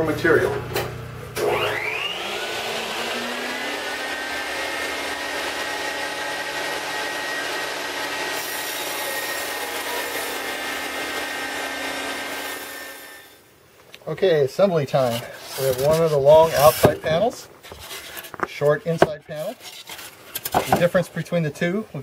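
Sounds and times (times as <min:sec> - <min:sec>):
saw blade cutting foam: 0:01.4 - 0:13.4, 0:15.0 - 0:18.3
table saw running: 0:01.4 - 0:13.4.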